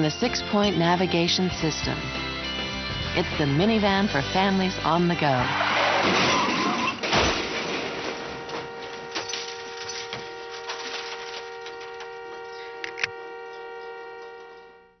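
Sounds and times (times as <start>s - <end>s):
ringing drone of held tones: 8.0s - 15.0s.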